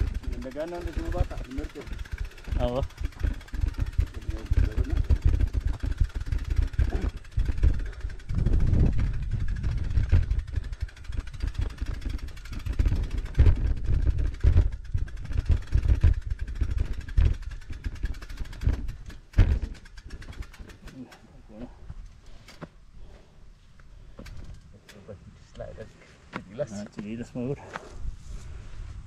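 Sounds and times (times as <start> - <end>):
wind buffeting microphone: 0.0 - 19.8.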